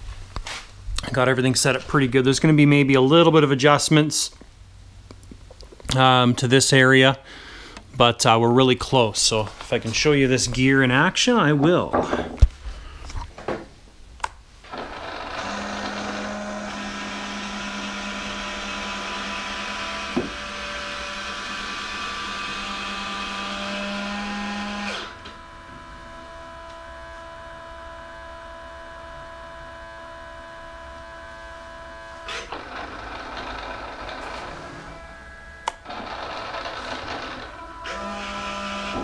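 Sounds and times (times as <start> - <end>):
quiet electric hum: 0.0 - 39.0
electric landing gear whining: 14.7 - 39.0.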